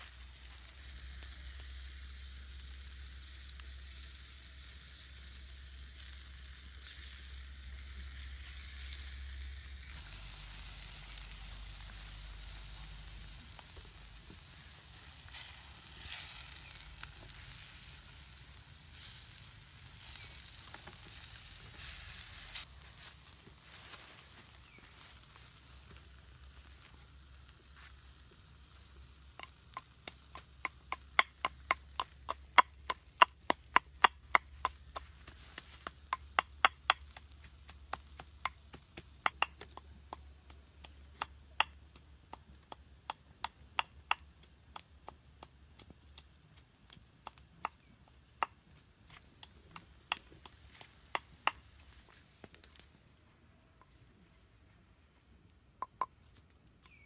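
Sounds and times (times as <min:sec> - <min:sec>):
wooden pestle pounding in clay mortar: 0:29.4 - 0:46.0.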